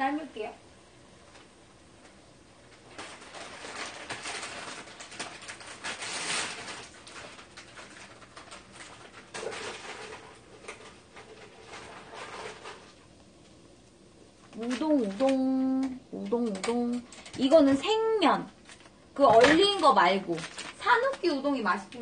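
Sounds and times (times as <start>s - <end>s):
plastic packaging crinkling: 1.3s - 22.0s.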